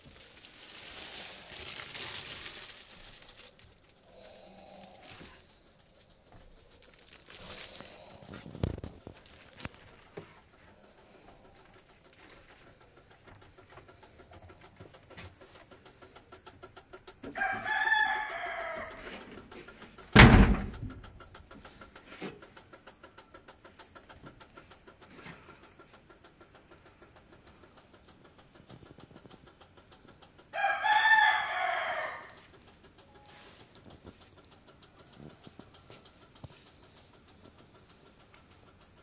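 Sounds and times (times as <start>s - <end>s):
rooster crowing: 17.2s - 19.2s, 30.5s - 32.5s
sharp bang: 20.2s - 20.8s.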